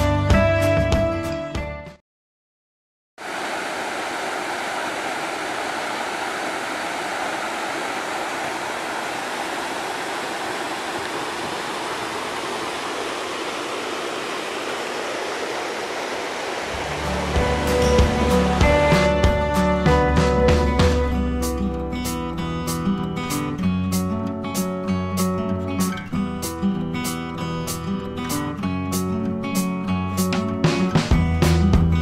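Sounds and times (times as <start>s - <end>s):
stream water over rocks: 3.2s - 19.9s
guitar music: 16.7s - 32.0s.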